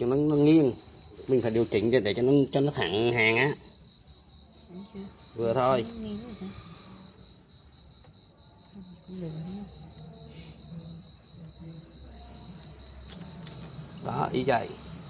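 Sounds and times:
cricket chirping trill: 0.0s - 15.0s.

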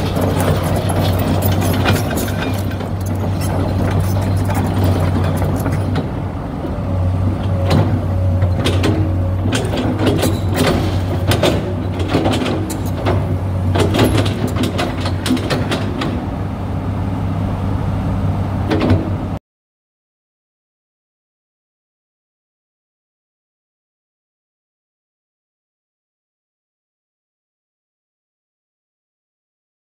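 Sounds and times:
sharp knocks and clanks: 0.0s - 6.2s, 7.5s - 16.3s, 18.7s - 19.2s
excavator diesel engine running: 0.0s - 19.4s.

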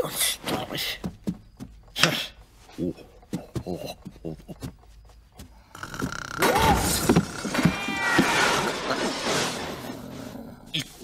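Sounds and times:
cartoon cat screeching: 6.4s - 8.8s.

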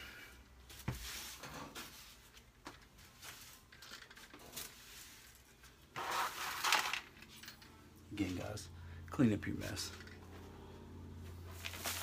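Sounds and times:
broom sweeping tile floor: 0.0s - 6.8s, 11.2s - 12.0s.

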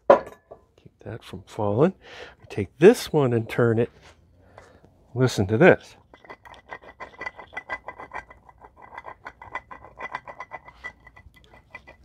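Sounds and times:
water pump grinding and clicking: 6.0s - 12.0s.

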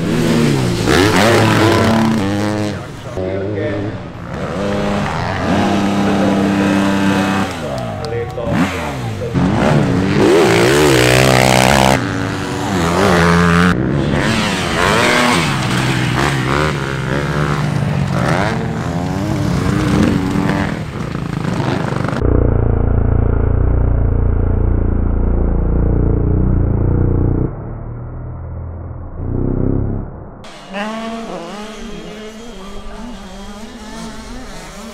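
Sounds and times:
motocross engines revving: 0.0s - 28.4s, 29.1s - 34.9s
low droning tone: 22.2s - 34.9s.

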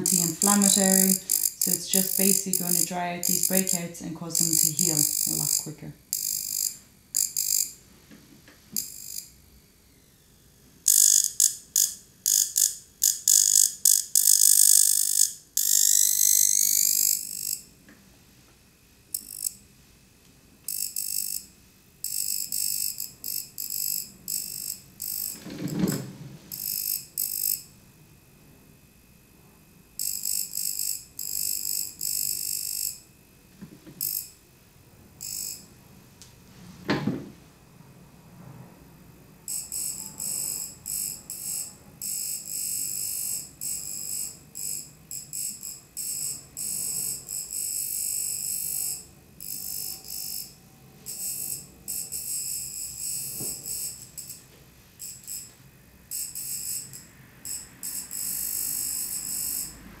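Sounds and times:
electrode buzzing crackle: 0.0s - 7.9s, 8.7s - 9.4s, 10.8s - 17.9s, 18.8s - 27.9s, 29.9s - 34.5s.

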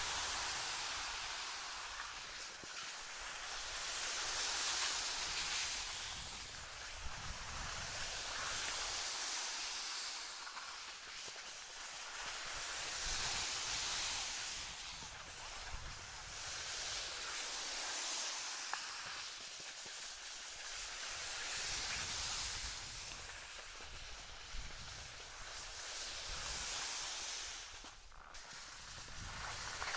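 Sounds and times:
skis scraping over snow: 0.0s - 29.9s.

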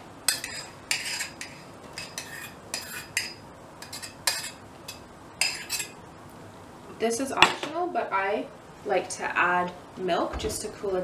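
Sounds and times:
spoon scraping a saucepan: 0.3s - 6.0s.

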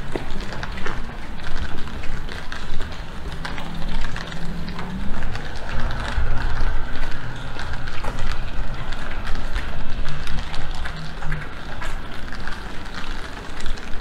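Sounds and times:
vehicle engine passing: 0.0s - 13.4s
rain ticks and clicks: 0.0s - 14.0s
steady wash of noise: 0.0s - 14.0s.

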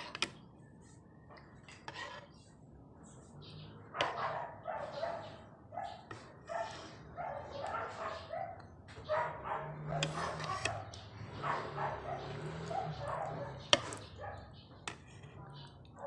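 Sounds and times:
dog barking: 3.9s - 14.6s.

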